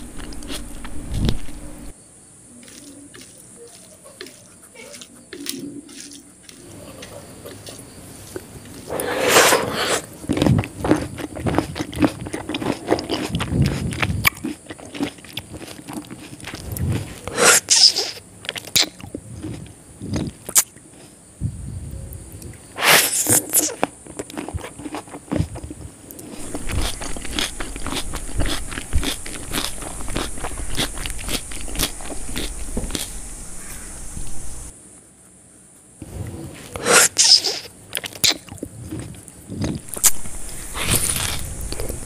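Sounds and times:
chewing and wet mouth noises: 2.6s - 9.1s, 9.7s - 21.2s, 23.2s - 34.7s, 36.6s - 42.0s
fingers working through rice: 2.6s - 18.2s.

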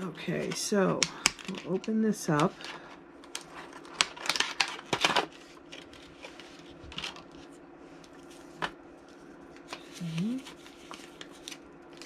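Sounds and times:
plastic packaging clicks and crinkles: 0.4s - 7.4s.

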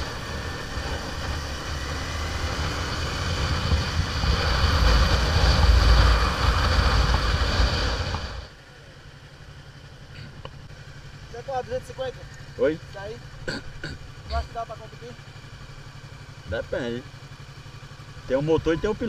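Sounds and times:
motorcycle engine drone: 0.0s - 19.0s.

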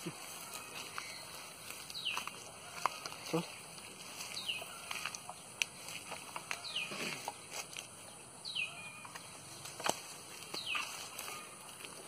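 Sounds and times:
bamboo pole knocking branches: 9.0s - 12.0s.

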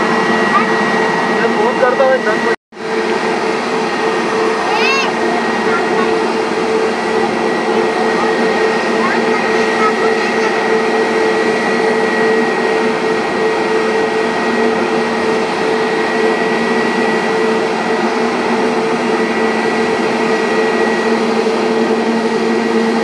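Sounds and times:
jet engines at taxi power: 0.0s - 23.0s.

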